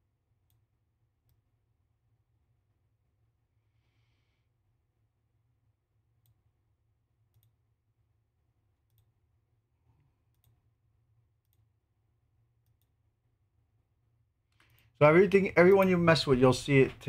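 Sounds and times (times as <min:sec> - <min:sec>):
computer mouse clicks: 0:07.2 - 0:07.7, 0:08.8 - 0:09.2, 0:10.2 - 0:10.7, 0:11.4 - 0:11.7, 0:12.6 - 0:13.0.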